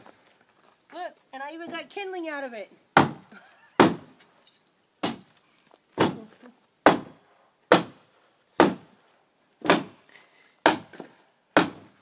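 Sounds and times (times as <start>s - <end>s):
chopping wood: 3.0s - 4.2s, 5.0s - 5.4s, 6.0s - 8.0s, 8.6s - 8.9s, 9.6s - 10.0s, 10.6s - 12.0s.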